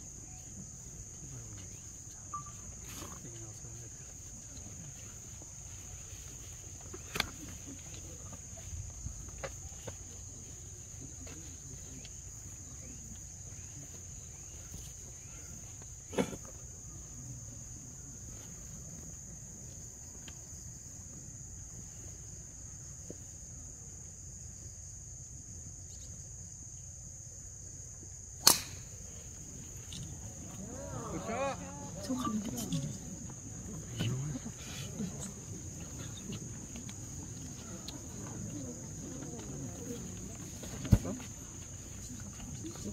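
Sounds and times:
insects droning: 0.0 - 42.9
sharp knock: 28.4 - 28.8.

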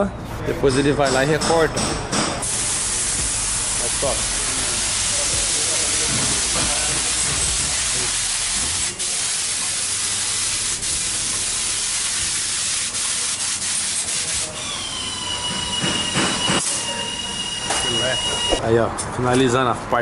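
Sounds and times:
spray gun hissing: 2.4 - 14.6
steady high whistle: 14.6 - 18.6.

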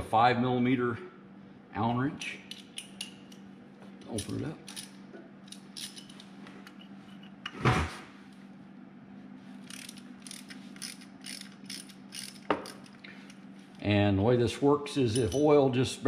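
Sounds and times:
metal wrench clank: 15.0 - 15.5.

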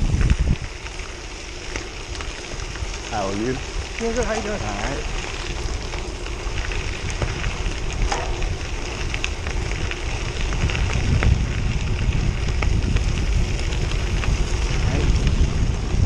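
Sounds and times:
bike tyres crunching on gravel: 0.0 - 16.0
wind noise on microphone: 0.0 - 16.0.

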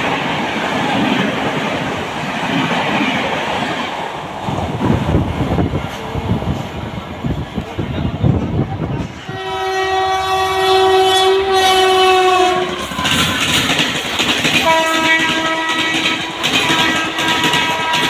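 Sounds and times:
train clattering past: 0.0 - 18.0
locomotive air horn: 9.3 - 13.6, 14.6 - 18.0.

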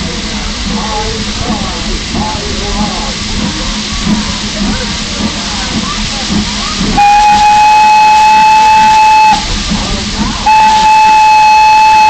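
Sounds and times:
steam locomotive whistle blasts: 6.9 - 9.5, 10.4 - 12.0.

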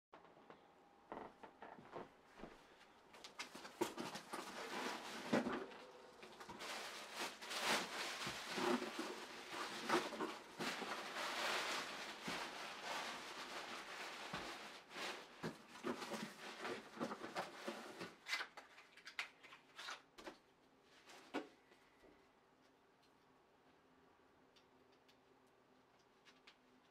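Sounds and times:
nylon fabric rustling and crinkling: 3.2 - 18.4.

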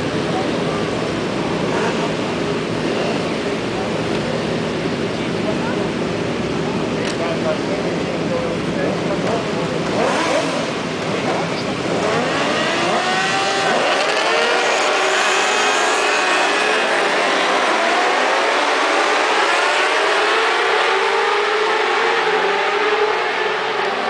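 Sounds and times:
racing motorcycles accelerating: 6.8 - 24.0.

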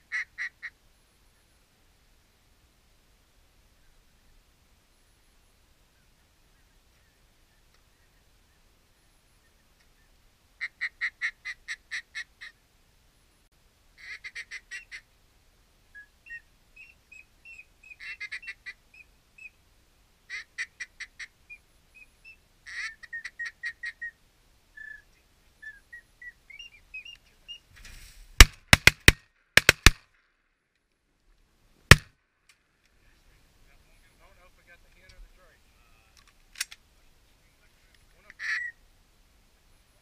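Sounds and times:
shotgun blasts: 28.4 - 30.0, 31.9 - 32.1.

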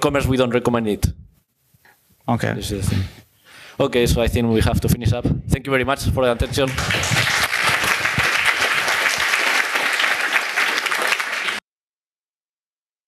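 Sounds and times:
audience applauding: 6.4 - 11.6.

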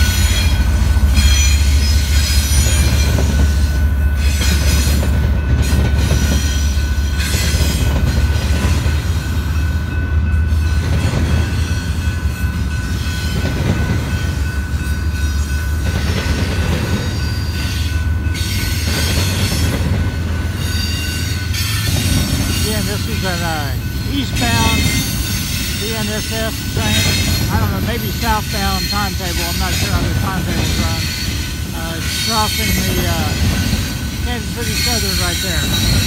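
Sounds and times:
high wheel squeal: 0.0 - 5.0, 23.9 - 29.9
freight train rumbling past: 0.0 - 36.0.

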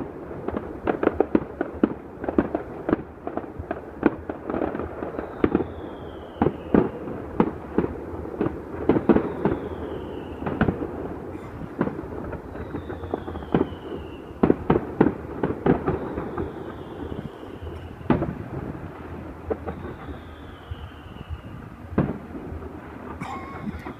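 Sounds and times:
distant fireworks bangs and pops: 0.0 - 23.9
falling whistle: 19.8 - 21.5.

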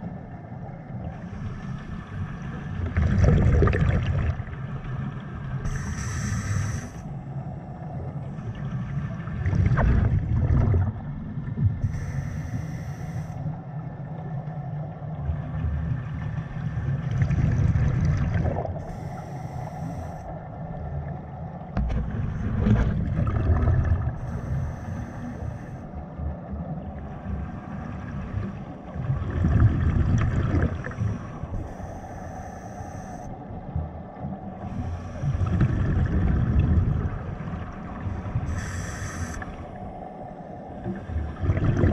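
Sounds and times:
exhaled bubbles rumbling underwater: 0.0 - 41.9
regulator hiss: 5.7 - 7.0, 11.8 - 13.4, 18.8 - 20.2, 24.2 - 25.8, 31.6 - 33.3, 38.5 - 39.6.

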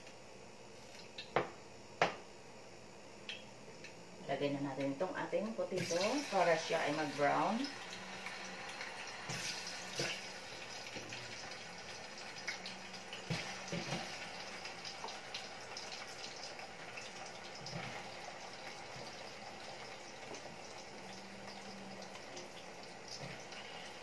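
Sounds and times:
potatoes sizzling in oil: 4.8 - 24.0.

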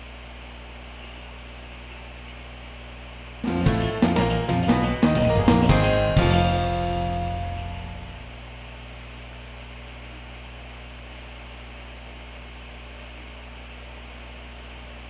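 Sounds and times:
steady electrical hum: 0.0 - 15.0
guitar music: 3.4 - 8.3.

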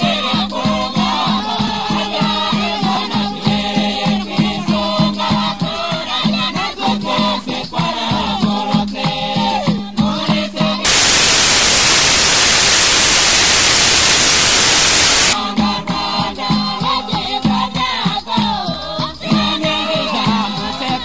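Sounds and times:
loud static hiss: 10.9 - 15.4.

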